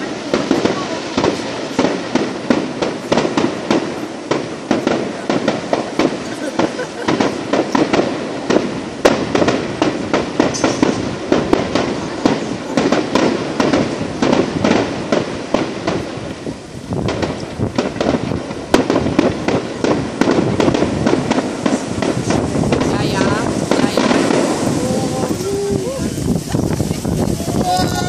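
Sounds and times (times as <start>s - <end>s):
fireworks bangs and crackles: 0.0s - 28.0s
loud firework bang: 0.0s - 28.0s.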